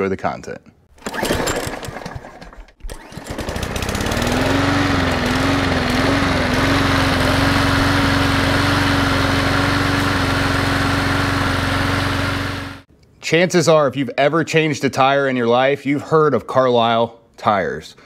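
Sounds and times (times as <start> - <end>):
lawn mower engine running: 0.9 - 12.9.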